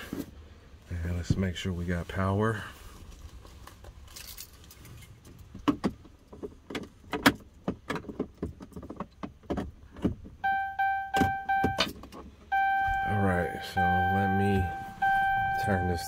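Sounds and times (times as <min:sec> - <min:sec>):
electronic chime beeping: 0:10.4 - 0:11.9, 0:12.5 - 0:16.0.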